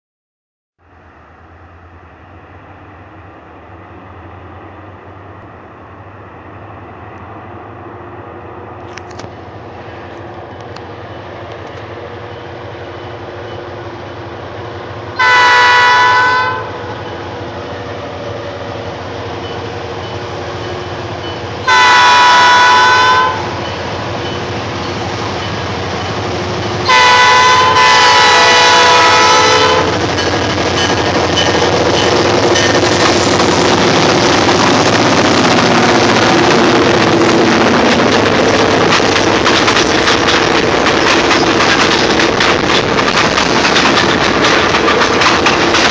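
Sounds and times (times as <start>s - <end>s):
train rumble: 0.8s - 45.9s
locomotive horn: 15.2s - 17.0s, 21.6s - 23.6s, 26.8s - 30.0s.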